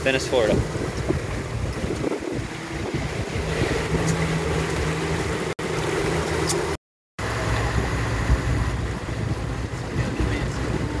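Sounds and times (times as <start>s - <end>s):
wind noise: 0.0s - 5.0s, 7.6s - 11.0s
motorboat engine running: 0.0s - 11.0s
water noise: 0.0s - 11.0s.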